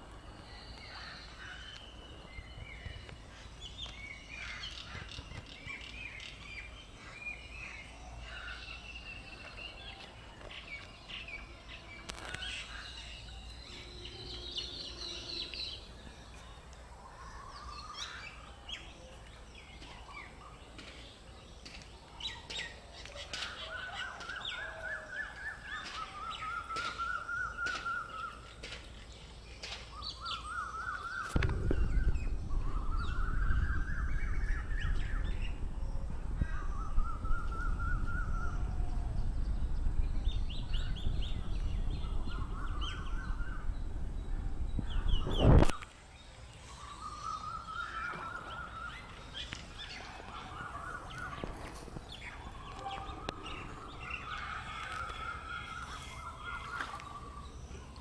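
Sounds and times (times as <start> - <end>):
birds chirping: 0.0 - 58.0
low steady rumble: 31.4 - 45.5.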